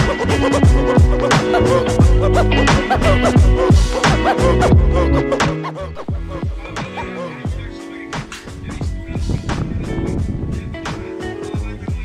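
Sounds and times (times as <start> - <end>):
deep sliding bass notes: 0.0 - 7.8
sustained synth notes: 0.0 - 10.7
steady beat: 0.0 - 12.0.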